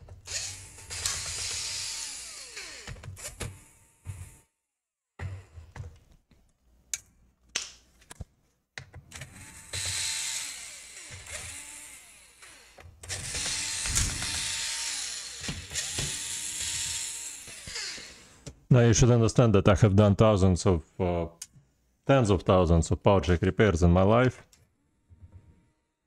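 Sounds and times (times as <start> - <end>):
electric screwdriver whirring: 0.2 - 3.5, 9.2 - 18.2.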